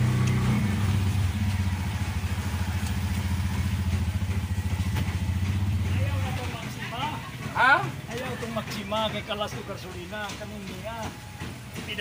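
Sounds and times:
small engine running steadily: 0.0 - 12.0.

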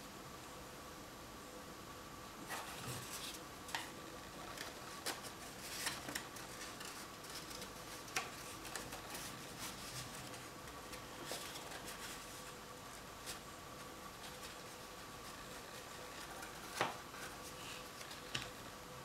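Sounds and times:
faint steady hum: 0.0 - 19.0
paper rustling and crinkling: 2.4 - 18.6
sharp paper clicks: 3.2 - 12.2.

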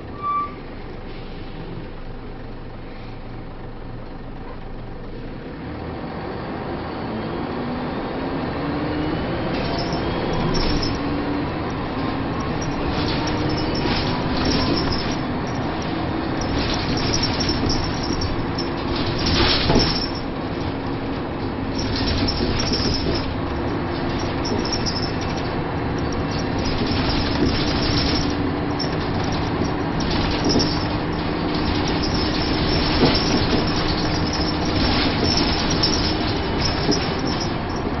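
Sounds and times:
bus engine drone: 0.0 - 38.0
road noise: 0.0 - 38.0
suspension knocks over bumps: 9.4 - 38.0
body panels rattling: 9.6 - 38.0.

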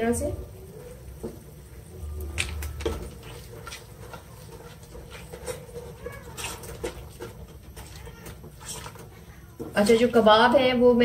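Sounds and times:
metal spoon scraping a pot: 2.4 - 10.2.

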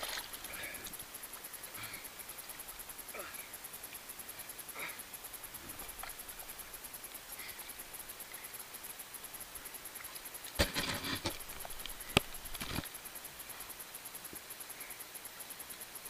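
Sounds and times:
water splashing and sloshing: 0.0 - 3.0, 5.3 - 8.4, 9.2 - 12.9.

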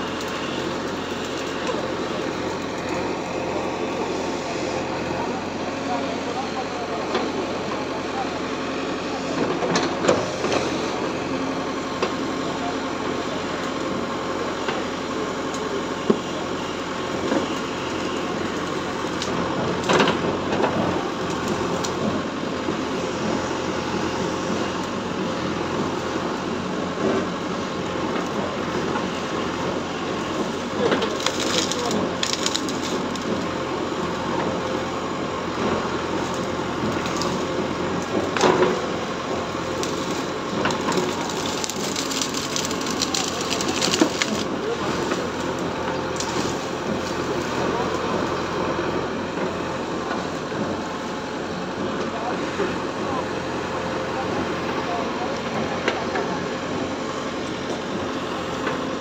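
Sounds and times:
diesel engine running: 0.0 - 59.0
bricks cracking and crashing: 39.8 - 44.5.

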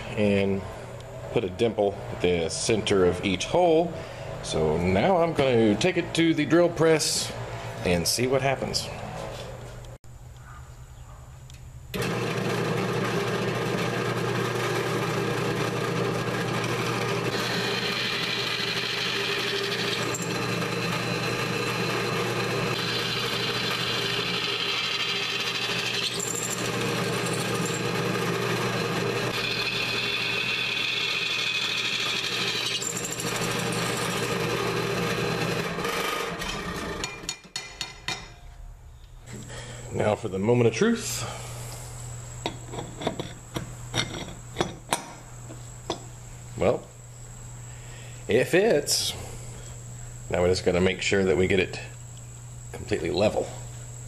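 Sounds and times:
drill press motor running: 11.9 - 37.3
drill bit cutting metal: 12.0 - 37.4.

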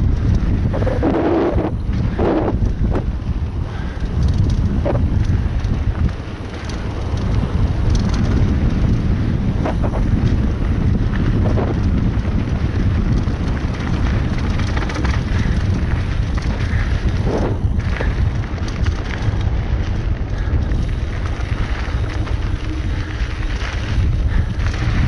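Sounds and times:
bike tyre and frame rattle: 0.0 - 25.0
wind buffeting microphone: 0.0 - 25.0.

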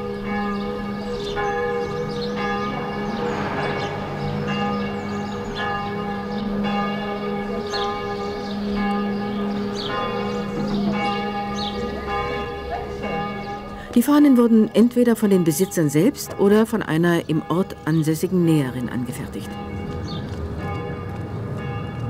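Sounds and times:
church bells ringing: 0.0 - 22.0.

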